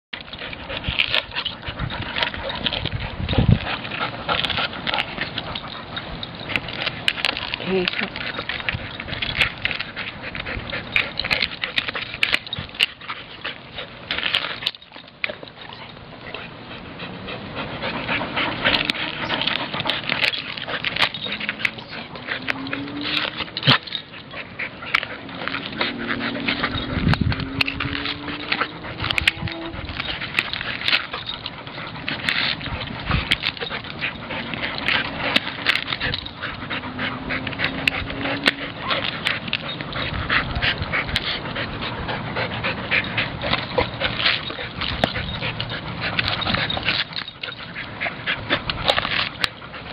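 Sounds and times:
dog whining: 21.0s - 30.3s.

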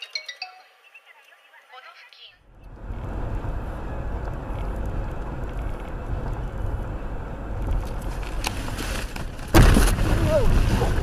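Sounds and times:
road and engine rumble in car: 2.5s - 11.0s.

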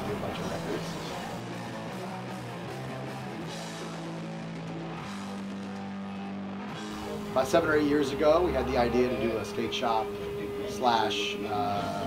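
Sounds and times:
rock band with electric guitar chords: 0.0s - 7.8s.

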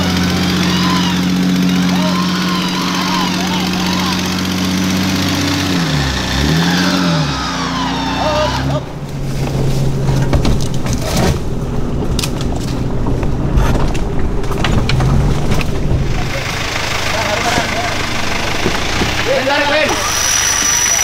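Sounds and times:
off-road engine revving: 0.0s - 21.0s
vehicle knocks and rattles: 8.9s - 19.9s.

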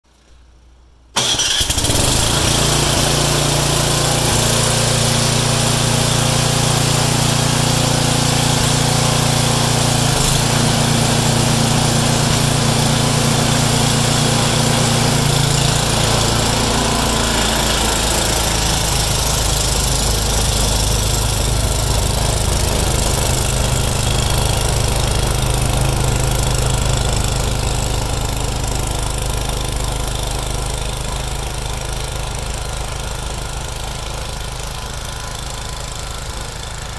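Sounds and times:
snow blower engine starting and running: 1.2s - 36.9s.

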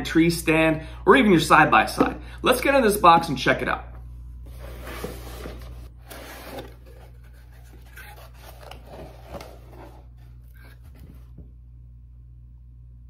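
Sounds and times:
cardboard box flaps rustling: 4.5s - 11.4s.

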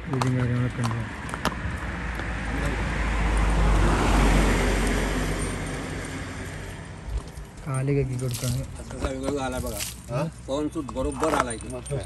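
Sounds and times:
vehicle passing by: 0.2s - 8.8s.

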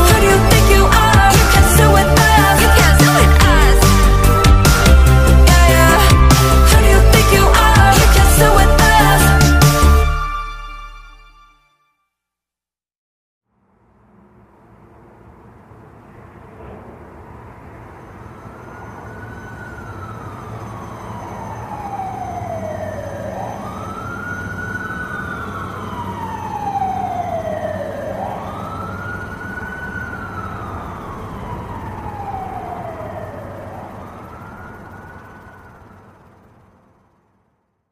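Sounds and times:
wailing siren: 0.0s - 11.4s, 16.6s - 37.4s
low steady rumble: 13.5s - 37.6s.

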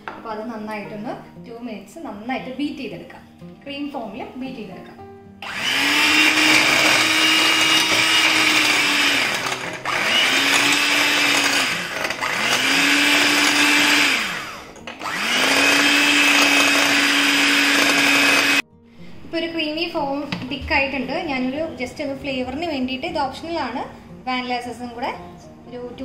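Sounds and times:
electric hand mixer whine: 5.4s - 18.6s.

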